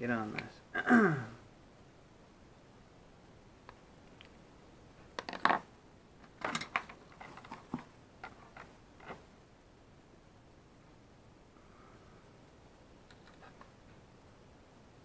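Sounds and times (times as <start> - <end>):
tools clattering and knocking: 6.4 - 9.2.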